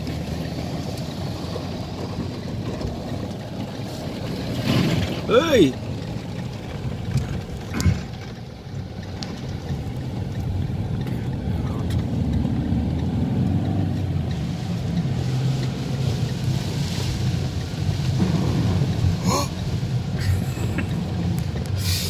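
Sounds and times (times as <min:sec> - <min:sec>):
car engine rumble: 0:00.0 - 0:22.0
rain on windscreen: 0:00.0 - 0:22.0
tyres on wet road: 0:00.0 - 0:22.0.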